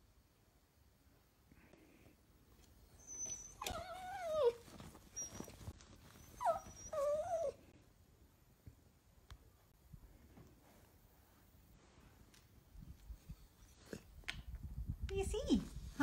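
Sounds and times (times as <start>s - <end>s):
dog giving high-pitched calls: 3.0s - 7.6s.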